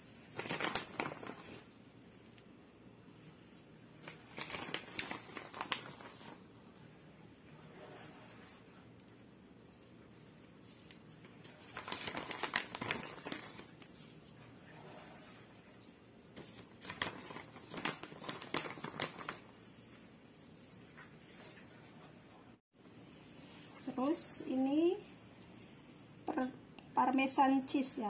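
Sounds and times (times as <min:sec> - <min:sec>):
plastic and paper crinkling: 0:00.0 - 0:01.8, 0:03.4 - 0:06.5, 0:09.0 - 0:21.6.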